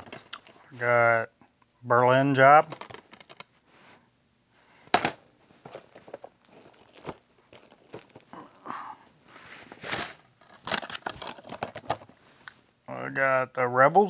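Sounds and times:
plastic wrap crinkling: 5.6 - 8.6, 9.2 - 12.5.

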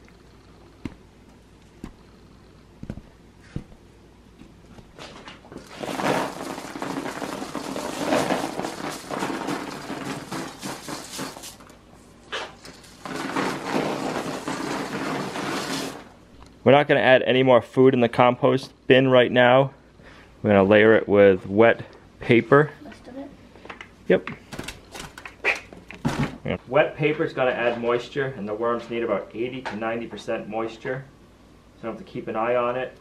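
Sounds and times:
manure pellets spilling onto paper: 5.6 - 11.7, 12.6 - 16.1.

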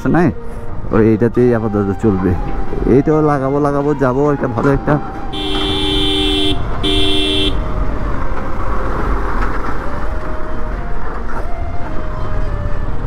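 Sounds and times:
road and engine noise: 0.0 - 13.0
vehicle horn honking: 5.3 - 7.7.

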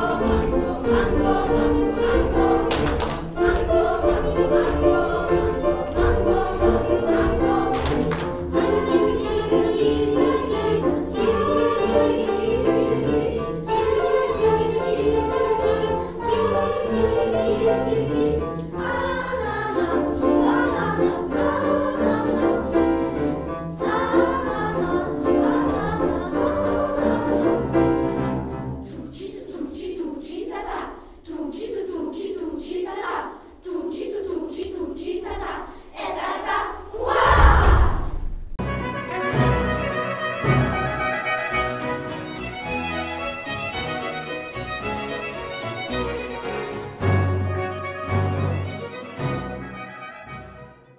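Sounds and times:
children's choir singing: 0.0 - 38.2.

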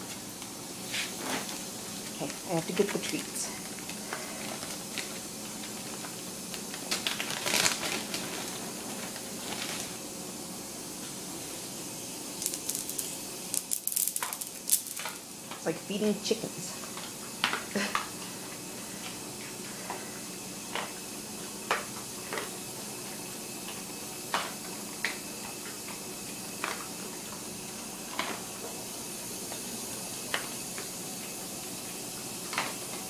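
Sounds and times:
steady hiss: 0.0 - 15.5
dogs chewing dry kibble: 2.0 - 10.0, 16.8 - 33.0.

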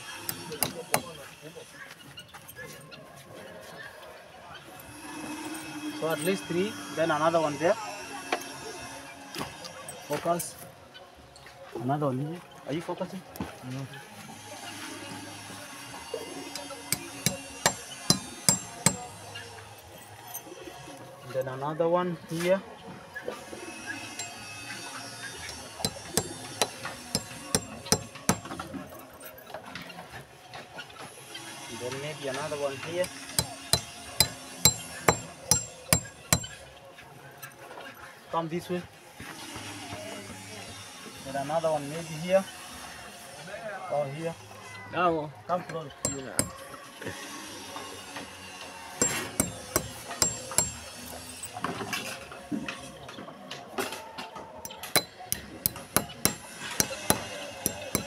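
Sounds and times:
hammer striking nail: 0.3 - 1.2, 16.9 - 19.1, 25.8 - 28.6, 33.0 - 36.6, 46.0 - 46.6, 49.0 - 50.8, 54.6 - 58.0.

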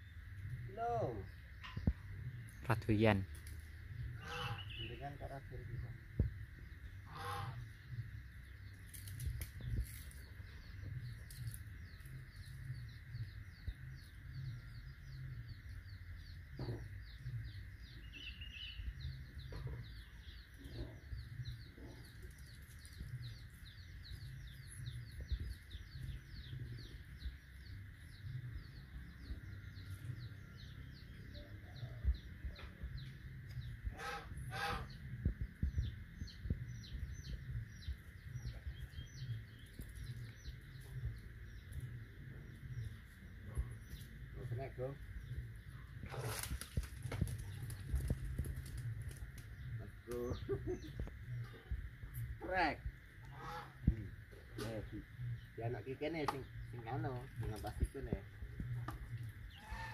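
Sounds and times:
birds chirping: 0.0 - 59.9
short loud bird calls: 4.1 - 5.2, 7.0 - 7.8, 33.9 - 35.3, 52.4 - 55.0, 59.5 - 59.9
low rumble: 5.5 - 55.6.

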